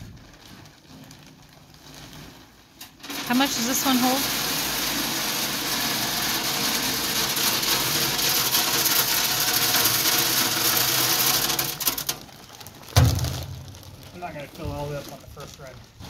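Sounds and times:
pellets pouring into metal hopper: 0:00.0 - 0:16.0
thump: 0:13.0 - 0:13.8.

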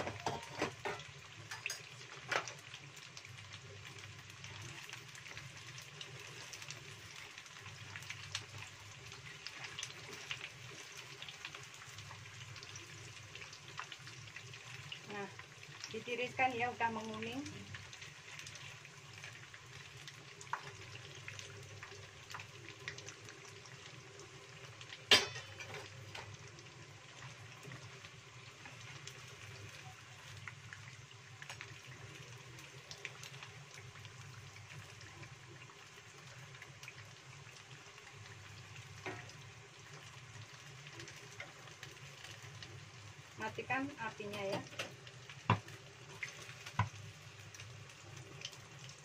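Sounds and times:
tofu deep-frying in oil: 0:00.0 - 0:49.0.

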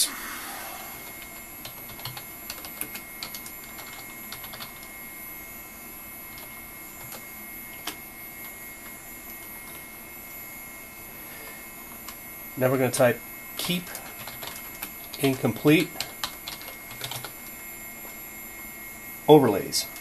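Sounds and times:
hum with high whine: 0:00.0 - 0:20.0
keyboard keys clicking: 0:01.1 - 0:04.9, 0:13.6 - 0:17.4.

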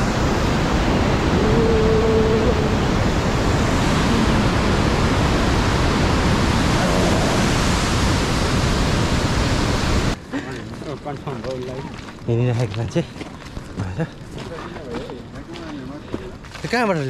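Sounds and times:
water rushing over boulders: 0:00.0 - 0:12.6.

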